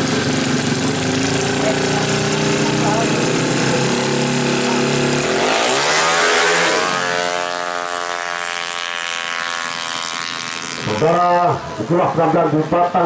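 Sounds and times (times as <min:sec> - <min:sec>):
motorcycle engine revving: 0:00.0 - 0:13.0.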